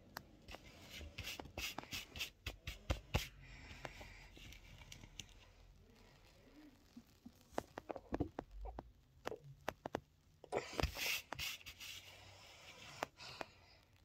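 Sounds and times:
light clicks and scratchy taps: 0:07.3 - 0:10.2.

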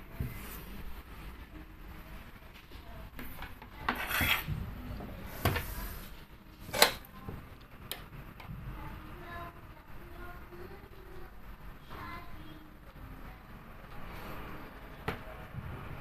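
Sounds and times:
plastic casing scraping on desk: 0:03.9 - 0:04.5.

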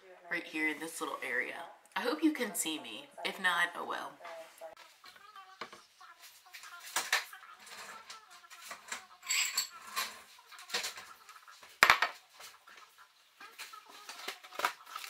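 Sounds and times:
dishes and utensils clattering: 0:06.5 - 0:12.9.

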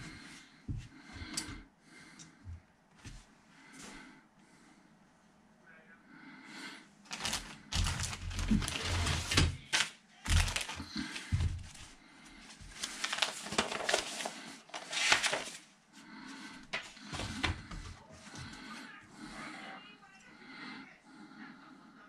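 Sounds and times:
plastic parts clicking and clattering: 0:07.1 - 0:11.8
paper sheet rustling: 0:07.1 - 0:15.7, 0:16.6 - 0:18.4.

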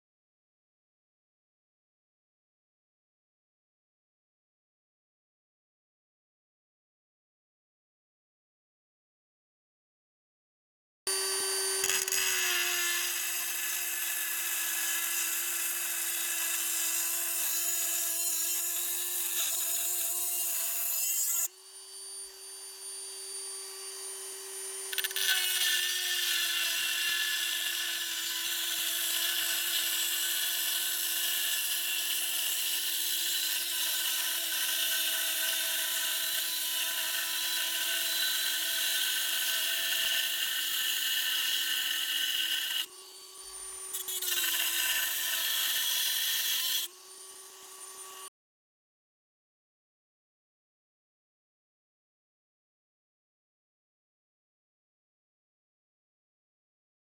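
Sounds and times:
rotary tool cutting steel: 0:11.1 - 0:48.3.

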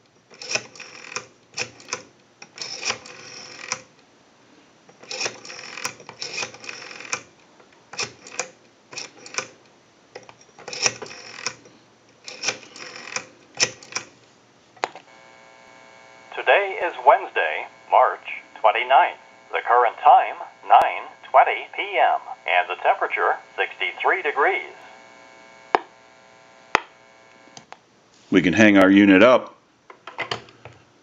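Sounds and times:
rotary telephone dial clicking: 0:00.4 - 0:03.9, 0:05.0 - 0:07.3, 0:08.0 - 0:09.6, 0:10.2 - 0:11.6, 0:12.3 - 0:14.1
telephone line tone: 0:15.1 - 0:27.6.

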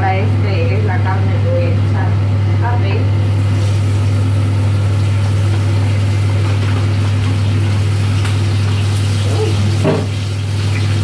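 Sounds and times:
range hood fan humming: 0:00.0 - 0:11.0
meat sizzling in a frying pan: 0:03.2 - 0:11.0.

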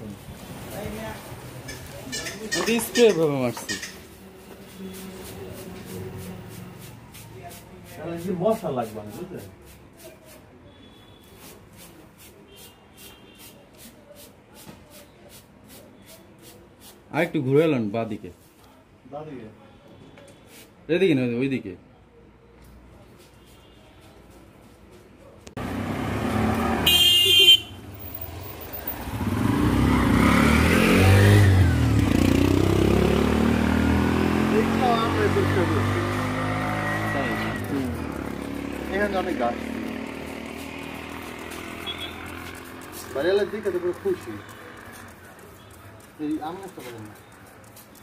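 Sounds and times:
motorcycle engines passing: 0:25.6 - 0:48.0
vehicle horn honk: 0:26.8 - 0:27.8, 0:41.8 - 0:42.3.

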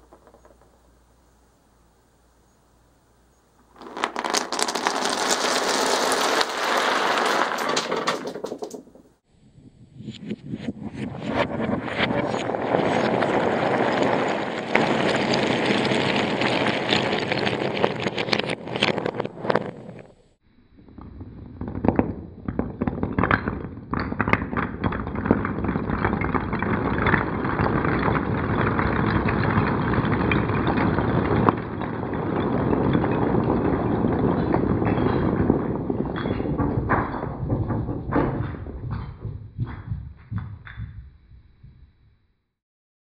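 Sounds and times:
wooden logs clattering onto table: 0:03.8 - 0:09.0.

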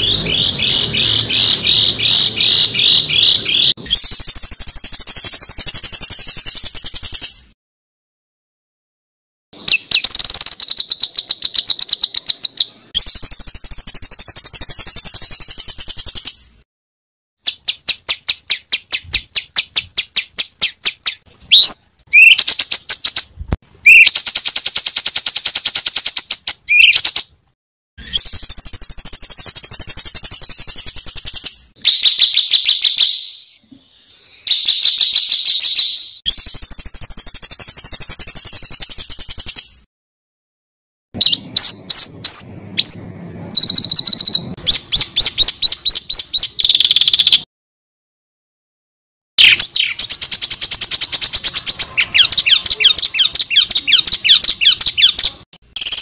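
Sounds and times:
songbird harsh chattering: 0:00.0 - 0:04.3, 0:49.4 - 0:56.0.

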